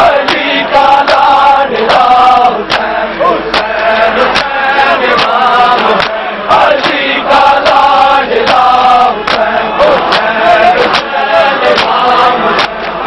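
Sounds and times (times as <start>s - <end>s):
men chanting in unison: 0.0s - 13.0s
hand-on-chest slaps: 0.2s - 1.2s, 2.7s - 2.9s, 3.5s - 6.2s, 9.2s - 11.1s, 11.7s - 12.0s, 12.6s - 13.0s.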